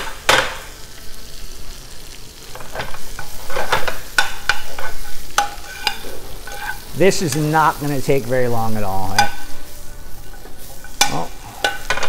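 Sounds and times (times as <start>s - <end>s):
chard sizzling in a pan: 0.0s - 12.0s
tongs clinking and scraping pan: 2.4s - 12.0s.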